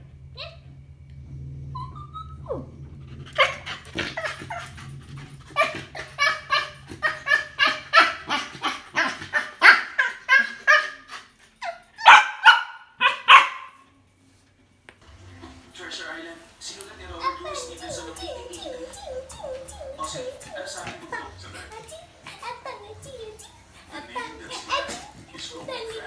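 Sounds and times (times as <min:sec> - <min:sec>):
small dog barking: 0:12.0 - 0:13.8.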